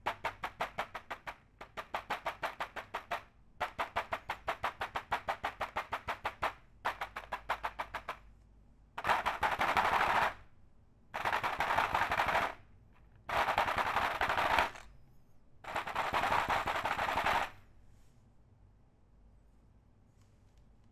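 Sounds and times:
fast typing on mechanical keyboard: 0.0s - 8.2s, 9.0s - 10.4s, 11.2s - 12.6s, 13.3s - 14.8s, 15.7s - 17.6s.

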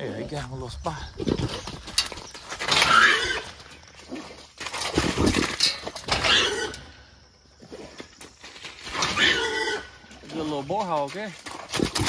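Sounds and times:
hog squealing and grunting: 2.7s - 3.5s, 6.1s - 6.9s, 9.0s - 10.0s.

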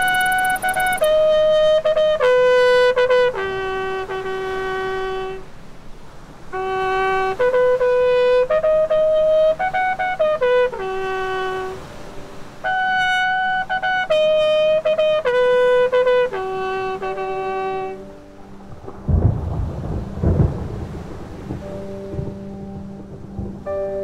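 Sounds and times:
bugle call: 0.0s - 5.4s, 12.6s - 18.0s
thunder rumbles: 18.6s - 24.0s.

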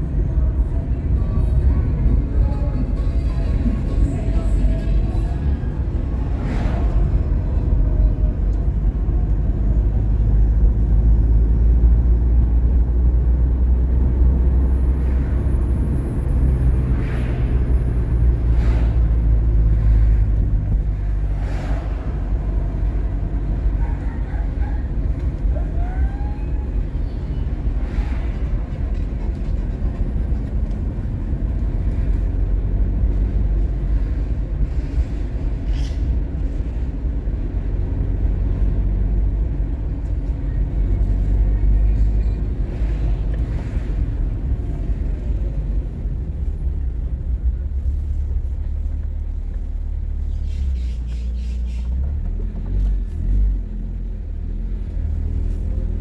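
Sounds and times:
vehicle engines rumbling: 0.0s - 56.0s.

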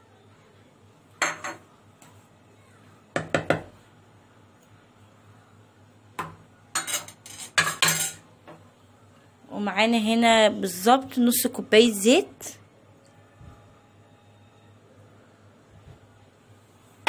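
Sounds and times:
spoon and dishes clinking: 6.8s - 8.2s.

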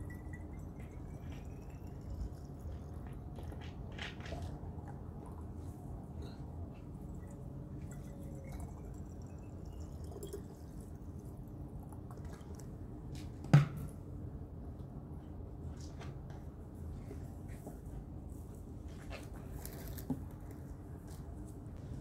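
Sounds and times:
water pouring into a bottle: 0.1s - 3.4s, 7.8s - 11.4s.

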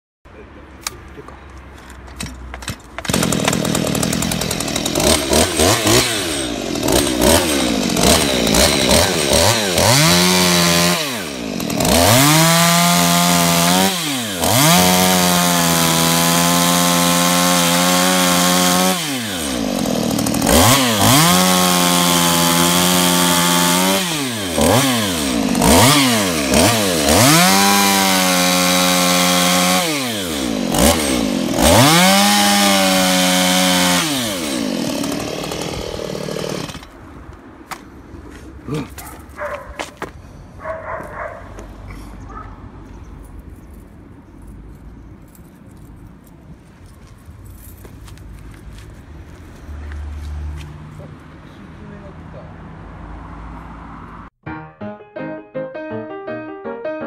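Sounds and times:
chainsaw idling with throttle blips: 3.0s - 36.9s
chainsaw revving cutting wood: 3.0s - 37.0s.

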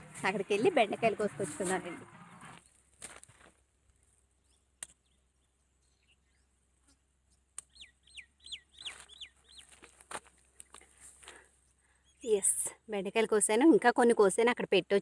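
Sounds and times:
okra pods snapping: 4.8s - 5.1s, 7.5s - 7.8s, 8.9s - 11.4s.

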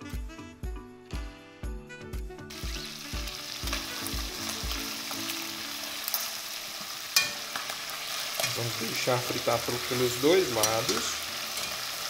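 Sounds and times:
background music with steady beat: 0.0s - 9.1s
chicken deep-frying in oil: 2.5s - 12.0s.

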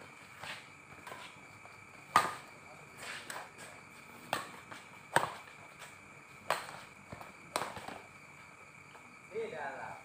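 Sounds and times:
badminton rackets hitting shuttlecock: 4.3s - 5.4s.

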